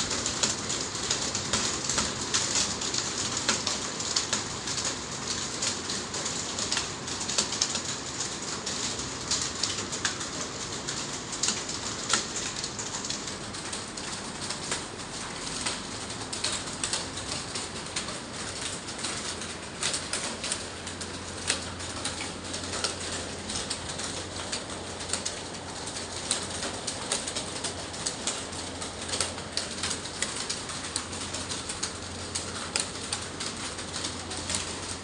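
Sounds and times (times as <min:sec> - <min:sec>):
keyboards typing clatter: 0:08.7 - 0:35.0.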